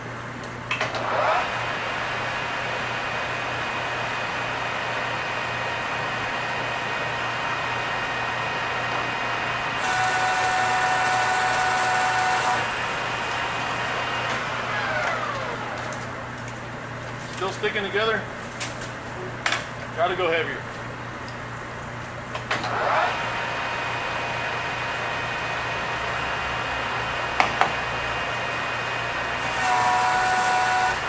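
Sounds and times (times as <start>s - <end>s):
lathe machine whine: 0.9s - 16.4s, 22.6s - 31.0s.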